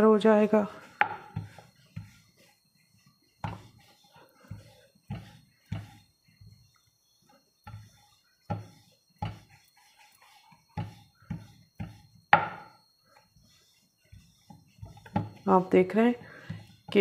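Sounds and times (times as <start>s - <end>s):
rolling pin knocking on wooden board: 1.0s - 2.2s, 4.5s - 6.0s, 7.6s - 9.6s, 10.8s - 12.8s, 14.2s - 15.4s.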